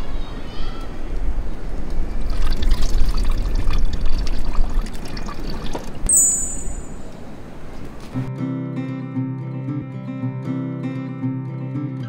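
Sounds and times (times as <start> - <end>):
low wind rumble: 0.0 - 4.8
short high chime: 6.1 - 7.1.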